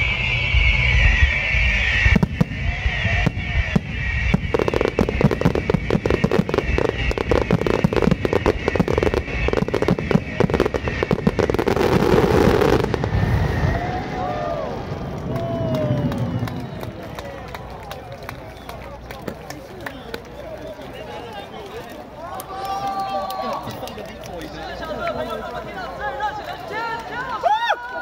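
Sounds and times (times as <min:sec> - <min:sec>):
fireworks bangs and crackles: 0:00.1 - 0:22.1.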